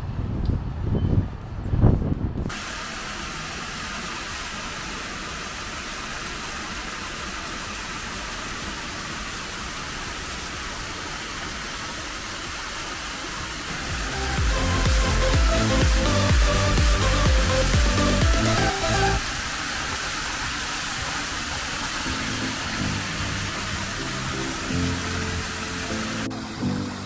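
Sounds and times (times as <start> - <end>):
rushing hiss of outdoor noise: 2.4 - 27.0
background music with a beat: 13.7 - 19.2.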